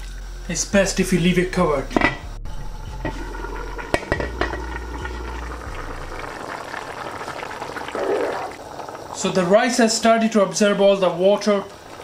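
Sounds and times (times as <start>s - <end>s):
pot of rice bubbling: 2.8s - 12.0s.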